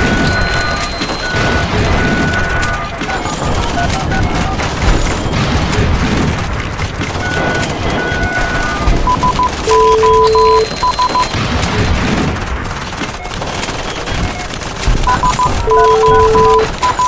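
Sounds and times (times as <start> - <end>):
electronic beeps: 0.0 - 5.5, 6.9 - 11.4, 13.9 - 17.0
explosions: 0.0 - 17.0
machine-gun fire: 0.0 - 17.0.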